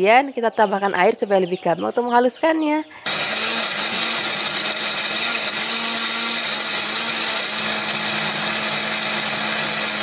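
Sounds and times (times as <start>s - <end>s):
blender running: 3.0s - 10.0s.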